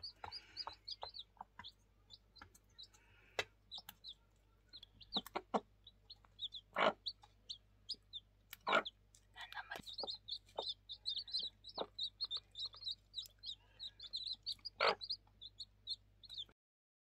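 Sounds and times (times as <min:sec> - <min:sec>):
pecking taps on feed dish: 0:00.0 - 0:02.6
chicks peeping: 0:00.0 - 0:16.6
hen clucking: 0:00.0 - 0:16.6.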